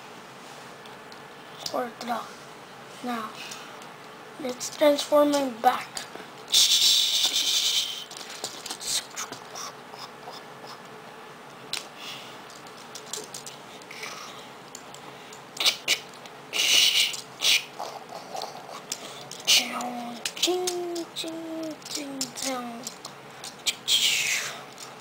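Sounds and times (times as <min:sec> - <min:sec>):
plastic toy clicks and rattles: 0:08.1 - 0:08.9, 0:12.5 - 0:13.6, 0:18.4 - 0:23.8.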